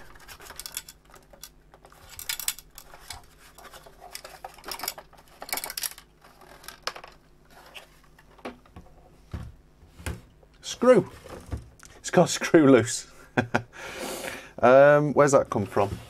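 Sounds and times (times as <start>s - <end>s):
loose screw rattling in metal: 0.0s - 7.2s.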